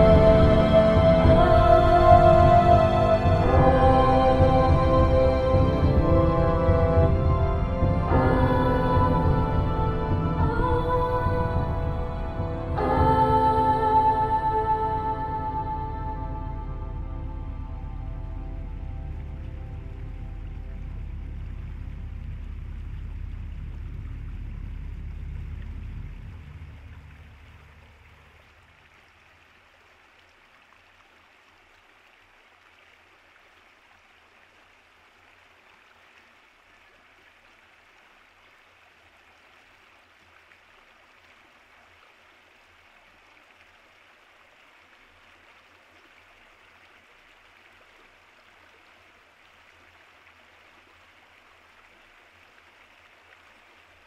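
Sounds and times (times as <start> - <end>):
low music: 0.0 - 28.5
flowing stream: 0.0 - 54.0.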